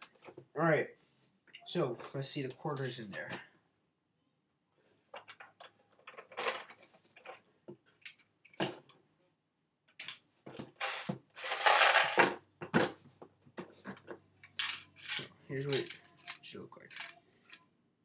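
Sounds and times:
coins rattling: 0:10.8 - 0:12.4, 0:13.9 - 0:17.2.

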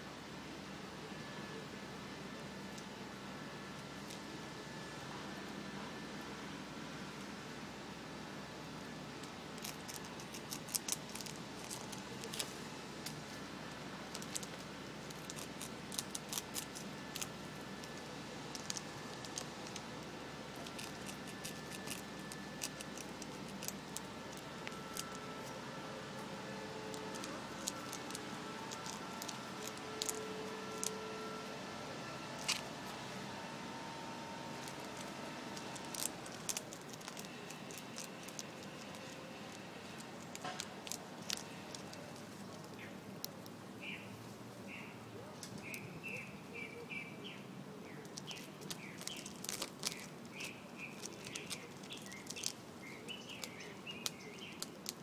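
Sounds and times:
squirrel gnawing wood: 0:09.1 - 0:33.2, 0:34.0 - 0:44.0, 0:47.9 - 0:55.0.

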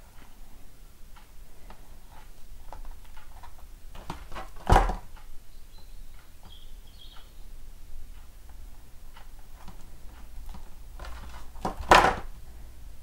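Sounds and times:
rubber mould clicking and rubbing: 0:01.6 - 0:05.3, 0:09.2 - 0:12.4.

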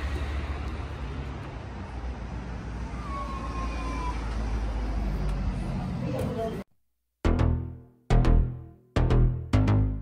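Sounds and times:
road traffic rumble: 0:00.0 - 0:06.7.

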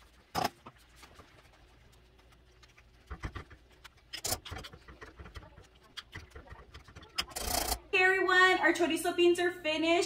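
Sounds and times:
masher squelching beans in pot: 0:00.0 - 0:07.9.

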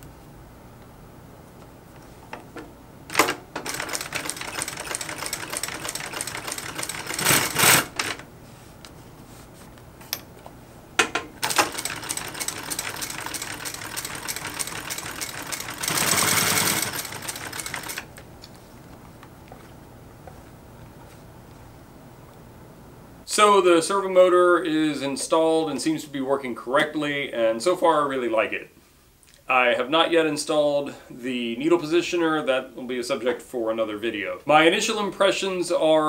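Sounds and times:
sewing machine stitching leather: 0:03.1 - 0:08.2, 0:11.4 - 0:18.1.

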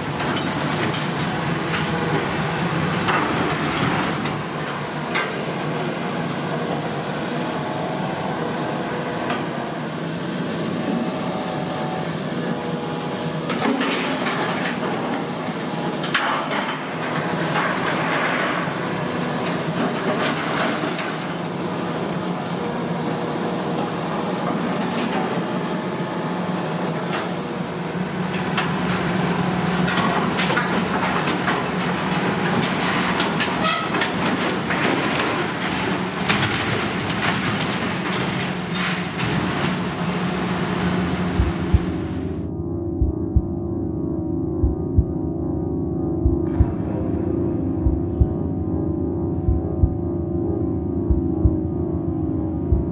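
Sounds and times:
excavator engine running: 0:34.2 - 0:43.5, 0:46.2 - 0:52.9.

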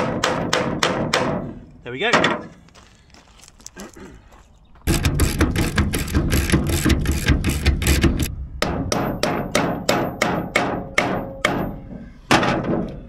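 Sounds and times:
hammer striking bolts: 0:00.0 - 0:01.5, 0:04.9 - 0:13.0.

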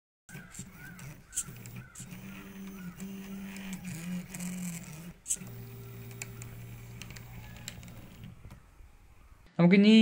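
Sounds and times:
stepper motors whining: 0:00.3 - 0:09.5.

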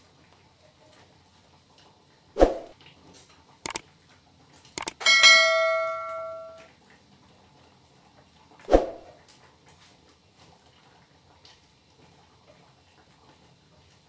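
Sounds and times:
sharp click: 0:04.8 - 0:06.6
bright bell ding: 0:04.8 - 0:06.7.

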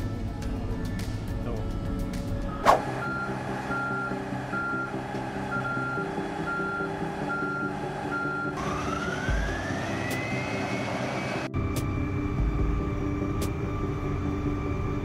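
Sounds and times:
diesel engine running: 0:00.0 - 0:15.0
rising engine whine: 0:00.0 - 0:15.0
back-up alarm beeping: 0:03.0 - 0:08.6.

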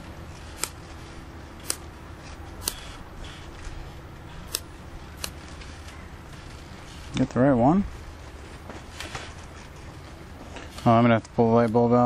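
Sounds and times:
low steady rumble: 0:00.0 - 0:12.0.

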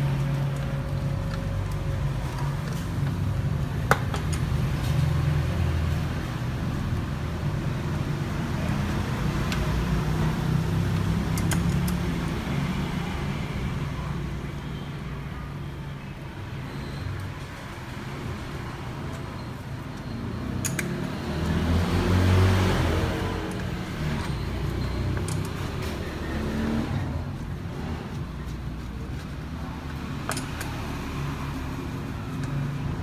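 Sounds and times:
low rumble of vehicle traffic: 0:00.0 - 0:33.0
socket wrench metallic clicks: 0:20.6 - 0:21.0, 0:30.2 - 0:30.8.

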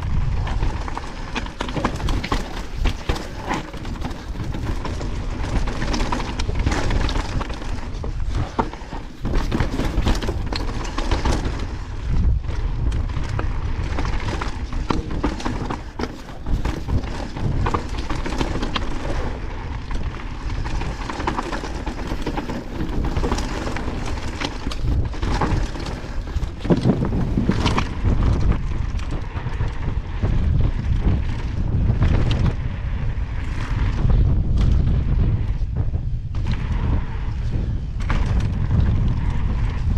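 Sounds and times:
tyres crunching over gravel: 0:00.0 - 0:31.7
bike rattling over bumps: 0:00.0 - 0:39.9
wind rumbling on microphone: 0:00.0 - 0:39.9.

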